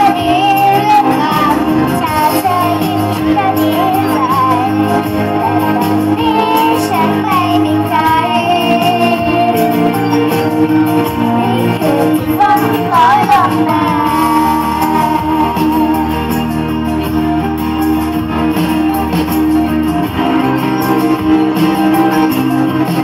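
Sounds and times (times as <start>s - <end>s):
girls singing into microphones: 0.0s - 16.2s
pop backing track over speakers: 0.0s - 23.0s.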